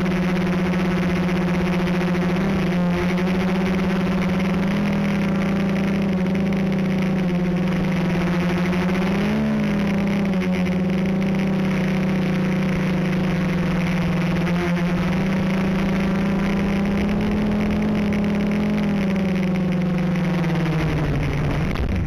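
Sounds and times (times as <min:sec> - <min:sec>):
quadcopter motors whining: 0:00.0 - 0:22.0.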